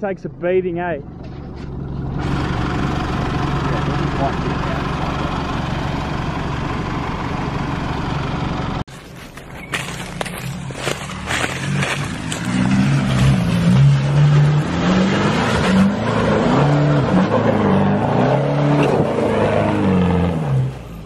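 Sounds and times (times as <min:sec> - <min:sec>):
tyres churning dirt: 0:08.9 - 0:20.7
car engine revving: 0:09.8 - 0:21.0.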